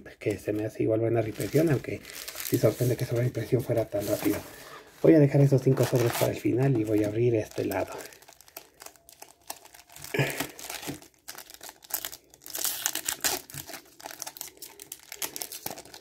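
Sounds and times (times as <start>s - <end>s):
foil packs crinkling: 0.2s - 16.0s
foil pack tearing: 1.2s - 3.3s, 5.6s - 16.0s.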